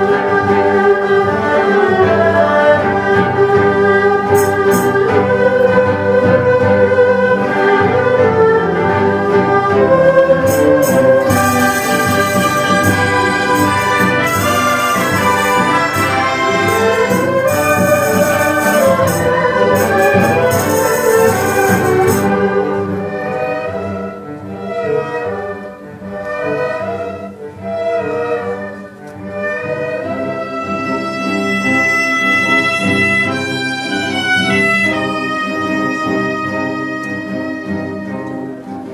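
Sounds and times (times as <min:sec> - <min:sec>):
bowed strings: 0:00.0 - 0:28.6
traditional orchestra playing: 0:00.0 - 0:38.9
percussion crashing: 0:04.3 - 0:05.2, 0:10.4 - 0:22.5.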